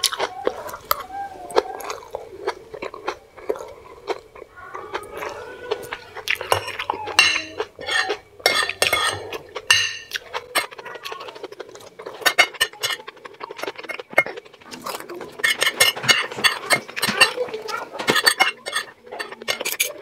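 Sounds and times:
chewing and mouth sounds: 0.0s - 20.0s
cutlery clinking on ceramic plate: 6.3s - 10.8s, 12.1s - 14.4s, 15.4s - 20.0s.

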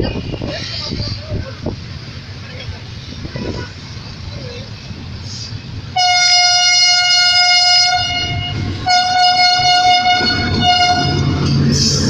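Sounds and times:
train rumbling: 0.0s - 12.0s
locomotive horn blasts: 6.0s - 11.5s.

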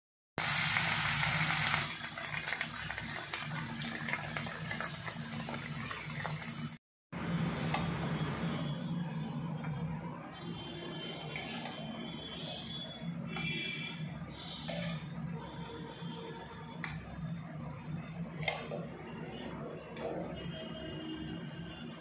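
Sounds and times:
fish sizzling in hot oil: 0.4s - 6.8s.

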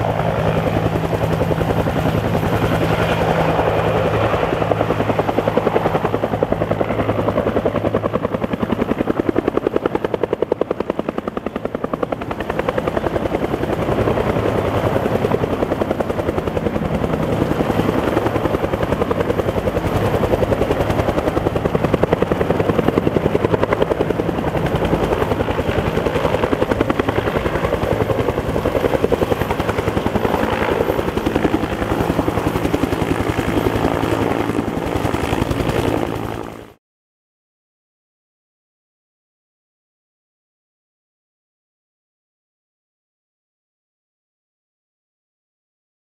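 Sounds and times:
helicopter rotor beating: 0.0s - 36.8s.

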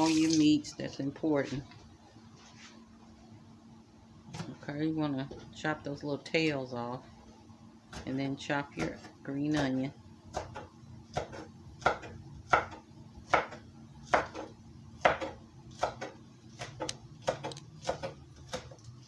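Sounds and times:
knife chopping on wooden board: 8.8s - 18.8s.

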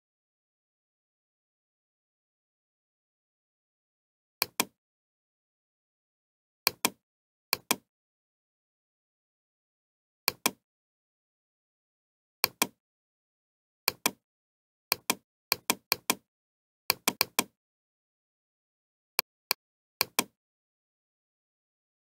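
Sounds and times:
computer mouse clicking: 4.4s - 4.8s, 7.6s - 7.9s, 10.3s - 10.6s, 12.4s - 12.8s, 13.9s - 14.2s, 14.9s - 16.2s, 16.9s - 17.6s, 20.0s - 20.4s.

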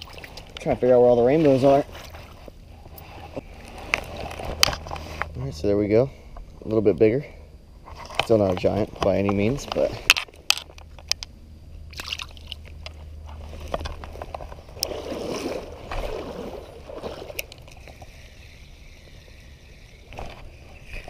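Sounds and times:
creek water sloshing and gurgling: 0.0s - 5.2s, 11.9s - 19.0s
handling clicks and rustles: 7.9s - 11.4s.

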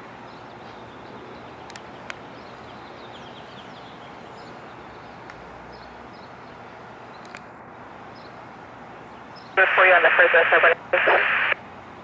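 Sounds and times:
street traffic hum: 0.0s - 12.0s
small birds chirping: 0.2s - 7.4s.

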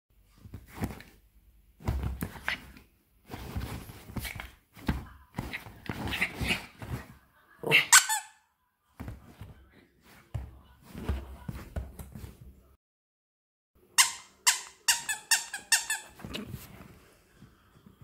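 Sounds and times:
dog scuffling: 1.8s - 7.2s.

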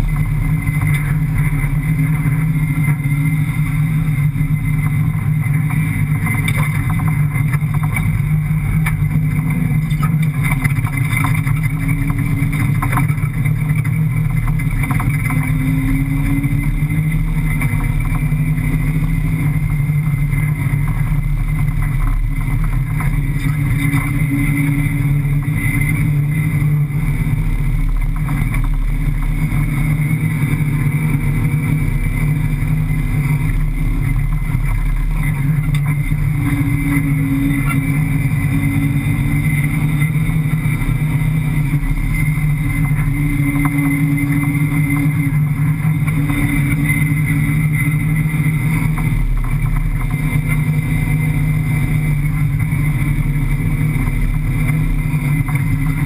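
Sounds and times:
car engine running under load: 0.0s - 56.0s.

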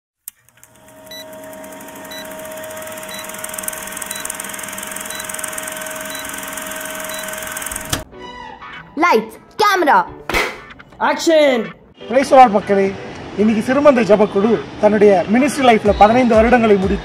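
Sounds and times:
film projector clatter: 0.3s - 8.0s.

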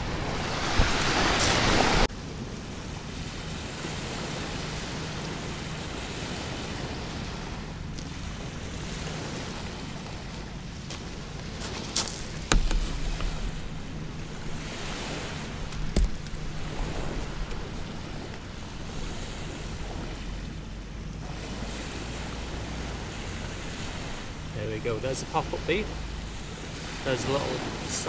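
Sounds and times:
wind on microphone: 0.0s - 24.6s
waves washing on shingle: 0.0s - 28.0s
short sharp knocks: 12.4s - 13.4s.

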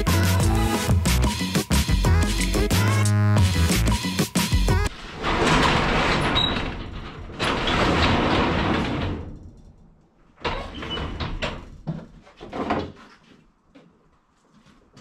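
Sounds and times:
garage door rolling open: 4.8s - 11.9s.

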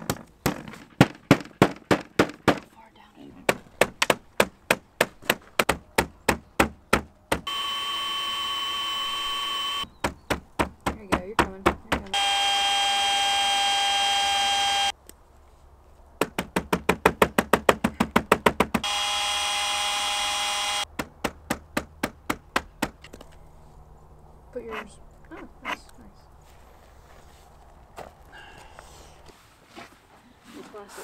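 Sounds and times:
power tool whining: 7.5s - 9.9s, 12.1s - 14.9s, 18.8s - 20.9s.

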